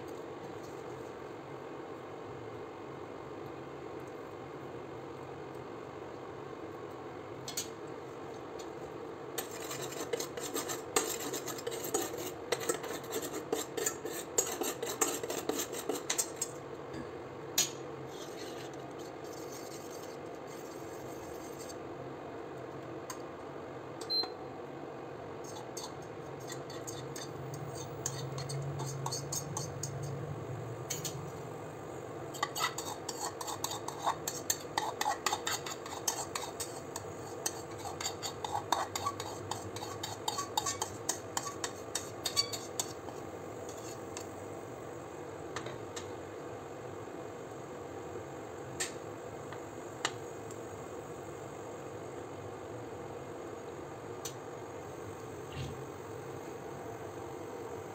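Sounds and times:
cutlery clinking against bowl: 0:09.4 - 0:16.5, 0:25.5 - 0:30.2, 0:37.4 - 0:43.0.

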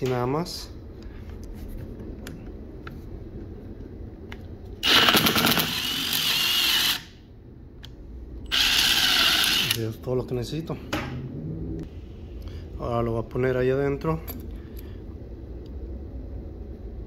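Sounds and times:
power drill boring into wood: 0:04.8 - 0:07.1, 0:08.5 - 0:09.8.

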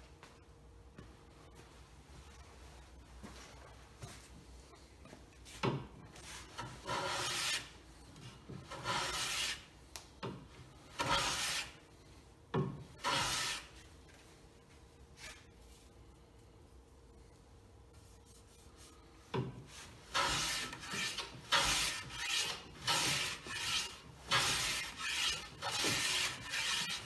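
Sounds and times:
hand plane rasping strokes: 0:06.2 - 0:07.7, 0:08.6 - 0:09.6, 0:11.0 - 0:11.8, 0:13.0 - 0:13.7, 0:20.1 - 0:27.0.

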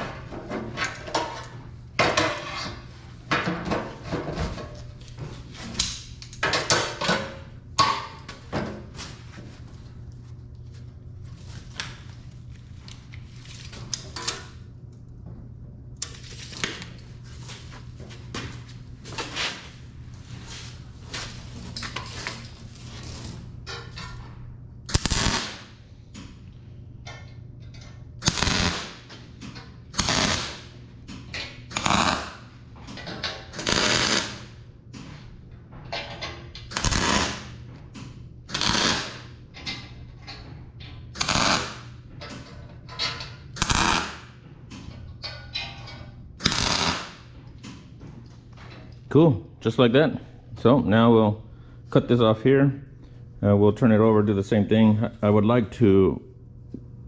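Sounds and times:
welder crackling bursts: 0:24.9 - 0:25.8, 0:28.2 - 0:29.1, 0:29.9 - 0:30.7, 0:31.7 - 0:32.5, 0:33.6 - 0:34.5, 0:36.7 - 0:37.6, 0:38.5 - 0:39.3, 0:41.2 - 0:41.9, 0:43.6 - 0:44.2, 0:46.4 - 0:47.2.

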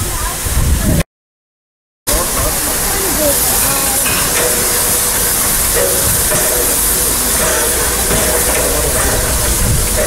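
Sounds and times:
steam hissing: 0:02.1 - 0:10.0.

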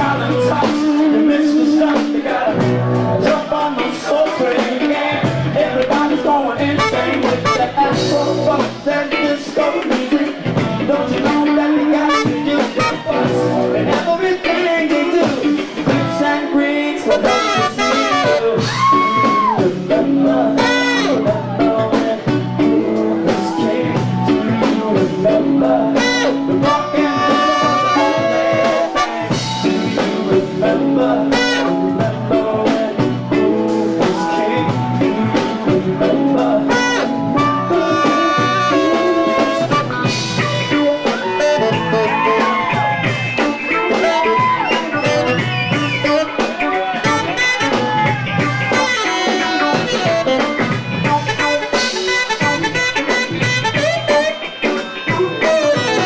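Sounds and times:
live band playing: 0:00.0 - 0:56.0
saxophone: 0:04.3 - 0:09.4, 0:10.0 - 0:56.0
trumpet: 0:06.6 - 0:08.6, 0:11.0 - 0:21.9, 0:22.7 - 0:32.1, 0:36.0 - 0:56.0.

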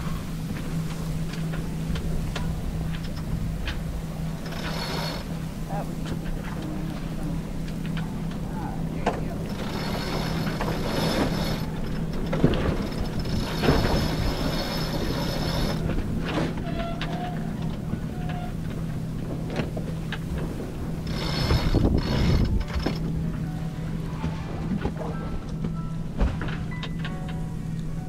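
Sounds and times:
steady low hum: 0:00.0 - 0:28.0
winch pawls ratcheting: 0:01.3 - 0:23.1.

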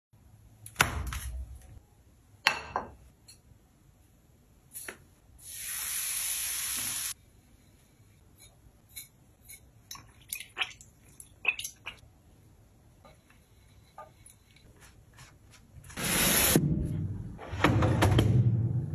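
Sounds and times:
hot oil sizzling: 0:05.4 - 0:07.2.

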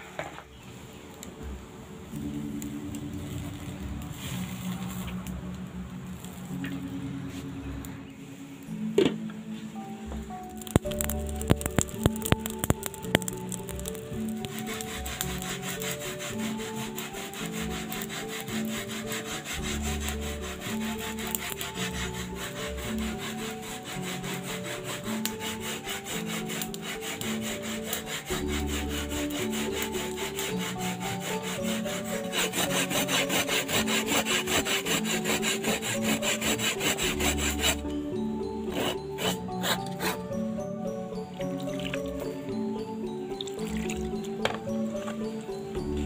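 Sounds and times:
background music: 0:00.0 - 0:46.0
coconut rasping on metal grater: 0:10.7 - 0:37.9, 0:38.6 - 0:40.3.

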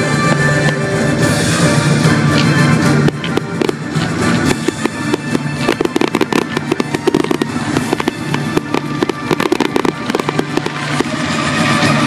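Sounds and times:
fireworks bangs and crackles: 0:00.0 - 0:12.0
music: 0:00.0 - 0:12.0.

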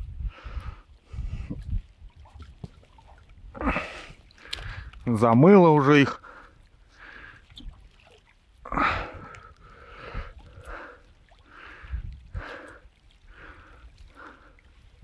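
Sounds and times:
dull low thumps: 0:00.0 - 0:02.8.

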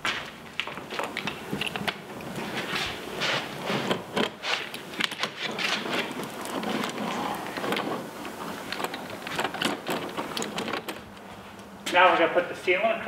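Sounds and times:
tape crackling and clicking: 0:00.1 - 0:11.7
seam roller rolling rasp: 0:02.3 - 0:10.9.

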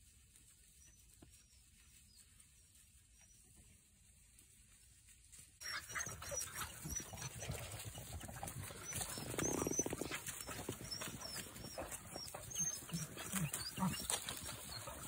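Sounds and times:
dogs sniffing and scuffling in grass: 0:00.0 - 0:15.0
low pulsing dog sound: 0:05.7 - 0:15.0.

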